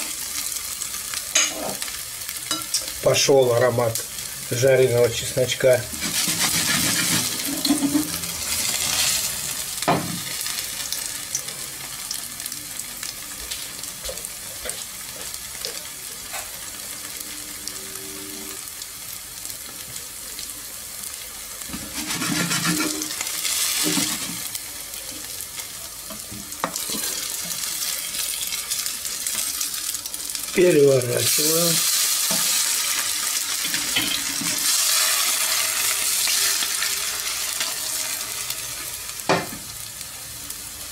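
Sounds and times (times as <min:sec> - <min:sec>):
potato cake sizzling in oil: 0:00.0 - 0:40.9
squeaky scrape in frying pan: 0:05.9 - 0:09.4, 0:21.7 - 0:24.5, 0:26.6 - 0:29.6.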